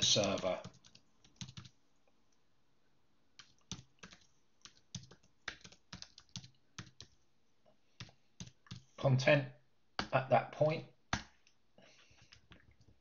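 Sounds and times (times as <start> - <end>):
keyboard typing: 0.0 - 1.8, 3.4 - 7.2, 8.0 - 9.0.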